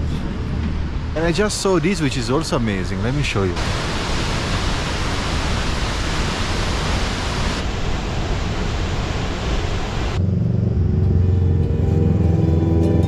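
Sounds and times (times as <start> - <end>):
waterfall roaring: 1.2 - 10.2
background music with low notes: 10.6 - 13.0.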